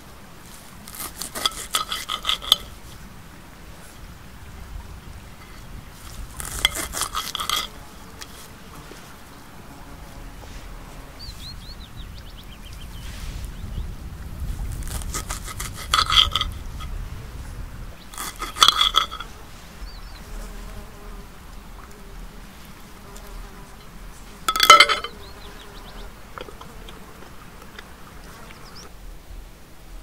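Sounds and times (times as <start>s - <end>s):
insect buzzing: 0.0s - 29.0s
knife and fork scraping plate: 0.9s - 2.7s, 6.4s - 8.4s, 14.9s - 16.6s, 18.2s - 19.3s, 24.5s - 25.1s.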